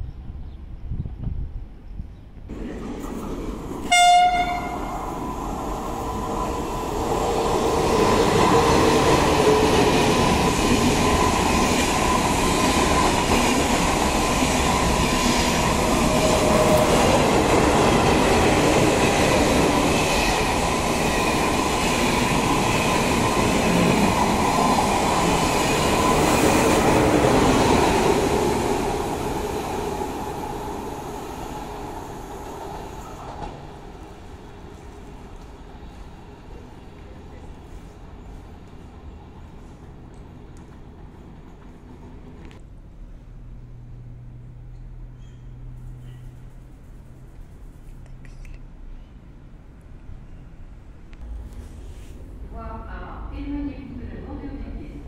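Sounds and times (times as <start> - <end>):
train passing: 2.4 - 48.0
train horn blast: 3.8 - 5.0.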